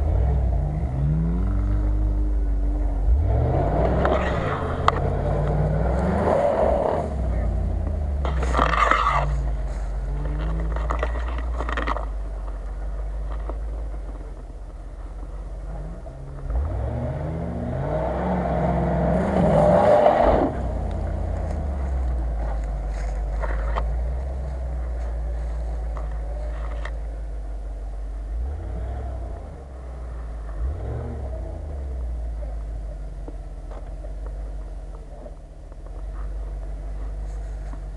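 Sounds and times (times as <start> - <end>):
car engine revving under load: 0.0 - 37.9.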